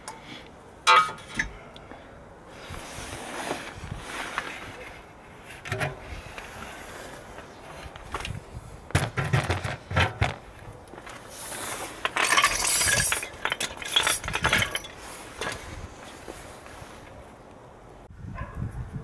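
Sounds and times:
metal scraping and rattling: 3.5 - 7.0, 8.9 - 16.4
metal clinks and knocks: 12.0 - 15.6.

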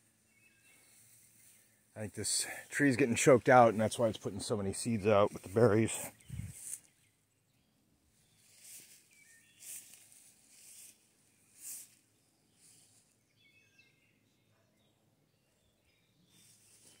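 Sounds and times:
faint bird chirps: 0.0 - 2.6, 5.3 - 17.0
footsteps through grass: 2.8 - 7.0, 8.3 - 13.1, 16.4 - 17.0.

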